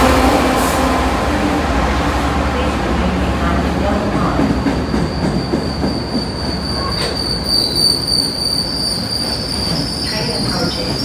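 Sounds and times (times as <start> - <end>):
train rumbling: 0.0 - 11.0
train wheels squealing: 4.8 - 11.0.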